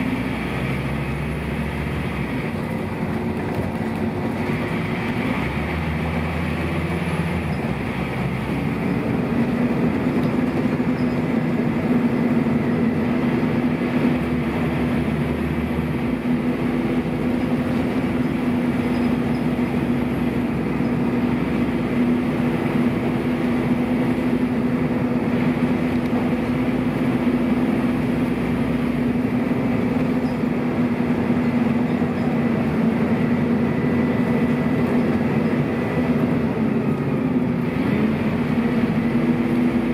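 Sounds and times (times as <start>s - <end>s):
bus diesel engine running: 0.0s - 39.9s
engine cooling fans whirring: 0.0s - 39.9s.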